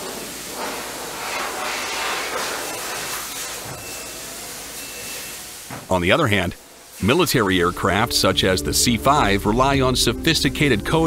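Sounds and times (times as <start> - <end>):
paint spray guns hissing: 0.0 - 5.8, 6.7 - 7.8.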